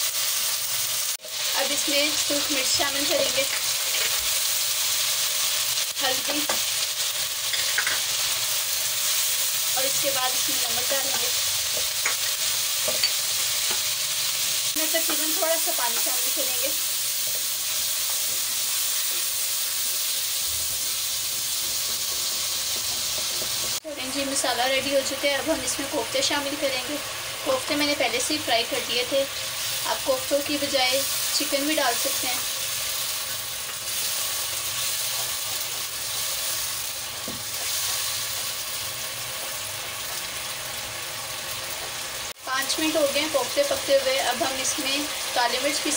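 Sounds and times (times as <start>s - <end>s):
masala sizzling in hot oil: 0.0s - 45.9s
spatula stirring in wok: 10.9s - 23.8s.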